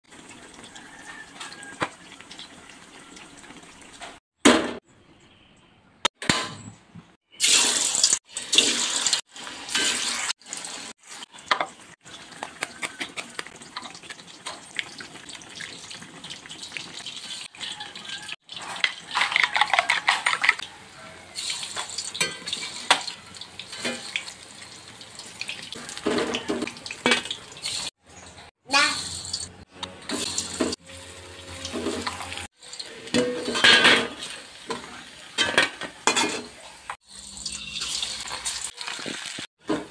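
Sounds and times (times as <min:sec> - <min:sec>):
tofu frying in hot oil: 0:07.4 - 0:18.8, 0:36.7 - 0:39.9.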